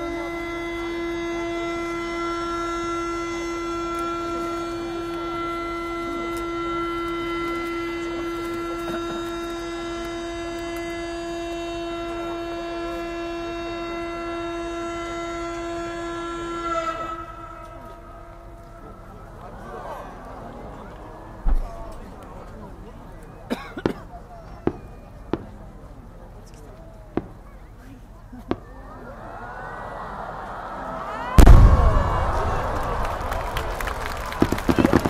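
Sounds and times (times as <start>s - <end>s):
horn long steady tone: 0.0s - 23.3s, 31.1s - 35.0s.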